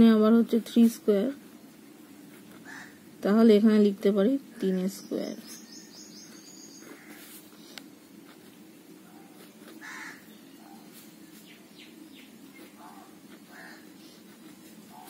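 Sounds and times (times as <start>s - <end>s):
low steady hum: 0.0s - 15.0s
pen scratching on paper: 1.8s - 3.0s, 5.4s - 11.5s, 12.4s - 15.0s
crow cawing: 2.6s - 3.0s, 9.8s - 10.3s, 13.5s - 13.9s.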